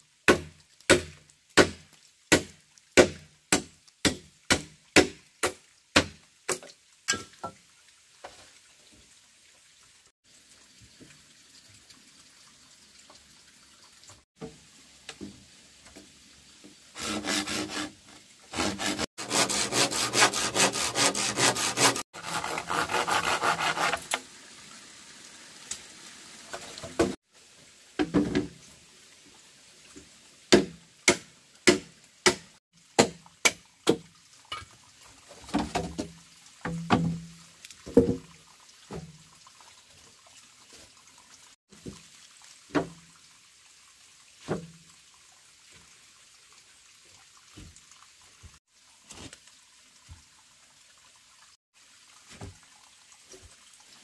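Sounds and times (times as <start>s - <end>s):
machete chopping bamboo: 0.3s - 7.3s, 30.5s - 34.0s
blade rasping through bamboo: 17.0s - 24.2s.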